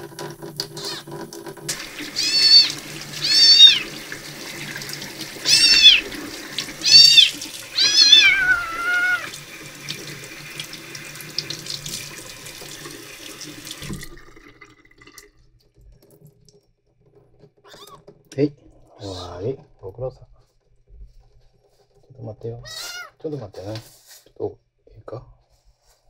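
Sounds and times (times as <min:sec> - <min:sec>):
tap water running into sink: 0:00.0 - 0:16.6
kitten meowing: 0:00.8 - 0:01.0, 0:02.1 - 0:03.9, 0:05.4 - 0:06.1, 0:06.8 - 0:09.4, 0:17.7 - 0:18.0, 0:22.6 - 0:23.2.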